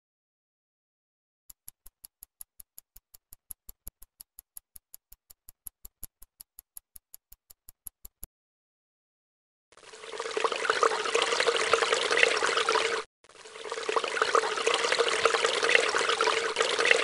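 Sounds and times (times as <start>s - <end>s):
water pouring and trickling: 9.8s - 17.0s.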